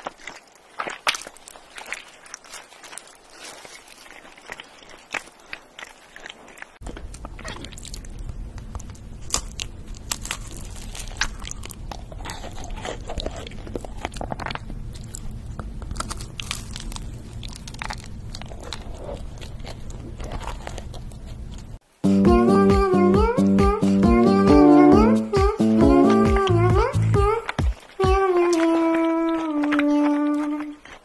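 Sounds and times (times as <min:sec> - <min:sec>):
crisp bites and chewing: 0:00.0 - 0:21.8, 0:27.4 - 0:31.0
steady low hum: 0:06.8 - 0:31.0
music: 0:22.0 - 0:28.7.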